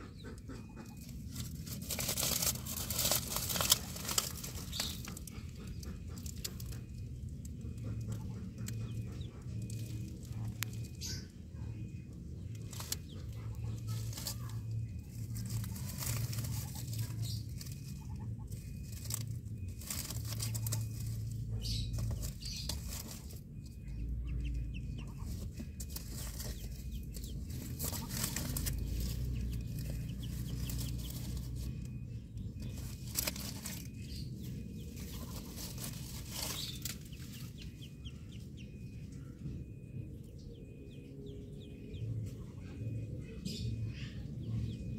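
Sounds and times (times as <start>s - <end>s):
chickens clucking: 0.0s - 44.9s
steady low rumble: 0.0s - 44.9s
dry leaves rustling and crackling: 1.0s - 6.8s, 12.5s - 23.4s, 24.6s - 37.9s.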